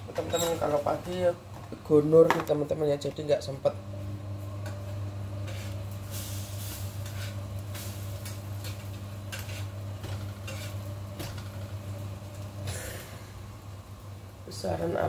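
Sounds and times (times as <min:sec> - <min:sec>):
steady low hum: 0:00.0 - 0:15.0
food sizzling in a pan: 0:03.9 - 0:15.0
utensil scraping a pan: 0:05.4 - 0:11.7.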